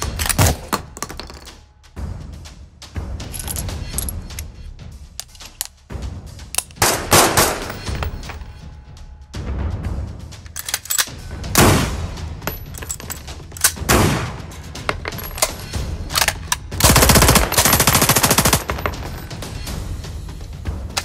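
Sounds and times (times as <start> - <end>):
weapon mechanism clicks: 0.0 - 0.7, 5.2 - 5.8, 10.5 - 11.2, 15.1 - 17.0
automatic gunfire burst: 16.8 - 18.8.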